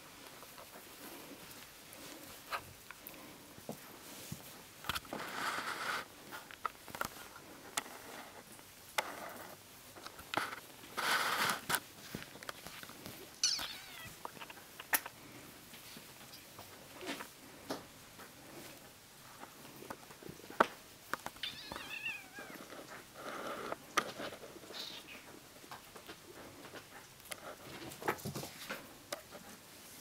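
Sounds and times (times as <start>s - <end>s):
kitten squeak: 13.4s - 14.2s, 21.4s - 22.6s.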